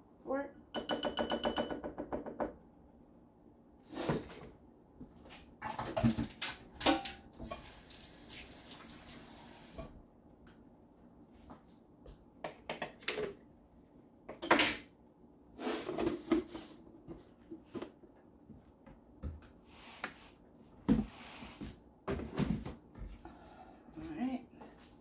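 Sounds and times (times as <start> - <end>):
dishes and utensils clinking: 14.3 - 15.0.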